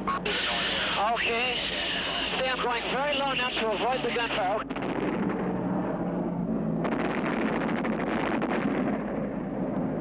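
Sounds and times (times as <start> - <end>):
piston aircraft engine running: 0.0 - 10.0
aircraft cannons firing rapidly: 6.8 - 9.4.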